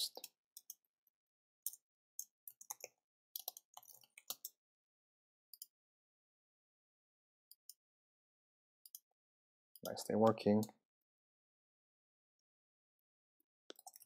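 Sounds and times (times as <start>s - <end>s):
computer keyboard typing: 2.5s - 4.6s, 13.7s - 14.0s.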